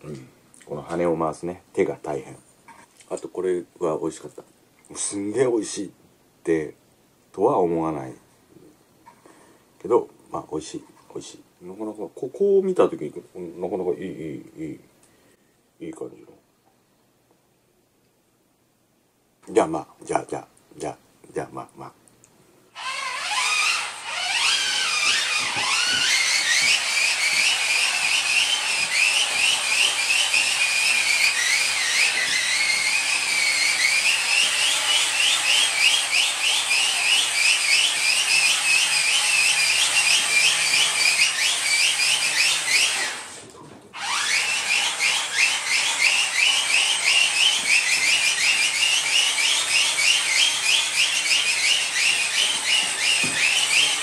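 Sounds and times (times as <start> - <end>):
toy blades whistling whir: 22.8 - 43.4, 44.0 - 54.0.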